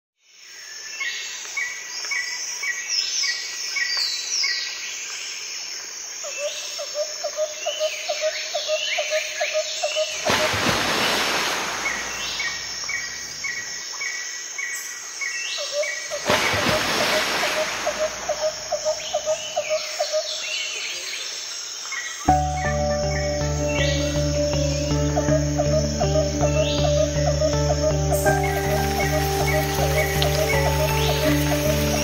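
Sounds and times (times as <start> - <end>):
birds chirping: 9.8 - 13.8, 15.8 - 21.1, 22.2 - 32.0.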